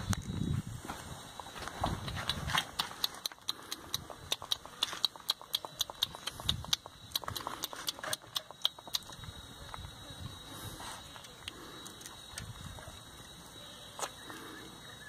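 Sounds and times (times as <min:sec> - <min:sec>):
puppy suckling clicks: 0:02.1 - 0:09.3.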